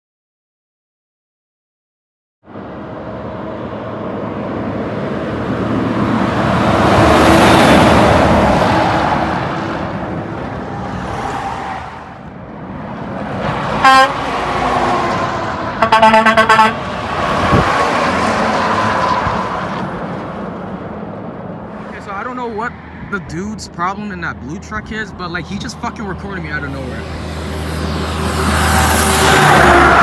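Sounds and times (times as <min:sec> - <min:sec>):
truck passing on highway: 0:02.4 - 0:30.0
truck horn toots: 0:13.8 - 0:14.3, 0:15.8 - 0:16.9.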